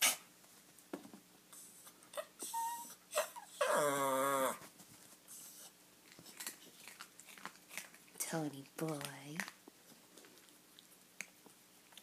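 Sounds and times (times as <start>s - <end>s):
dog whining: 1.6s - 4.7s.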